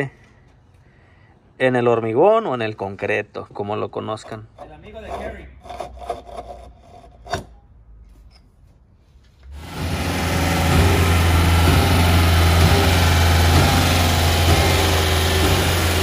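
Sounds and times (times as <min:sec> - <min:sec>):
pump engine running: 0:09.6 - 0:16.0
knocks on wood: 0:10.7 - 0:15.9.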